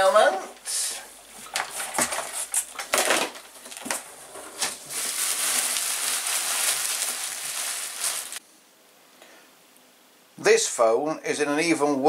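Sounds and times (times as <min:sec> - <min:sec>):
bubble wrap crinkling: 0:01.3 - 0:08.4.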